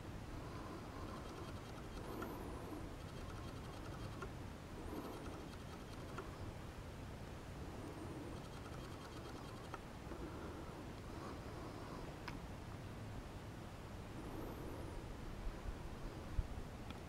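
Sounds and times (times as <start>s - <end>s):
faint steady hiss: 0.0s - 17.0s
soft light ticks: 12.2s - 12.4s.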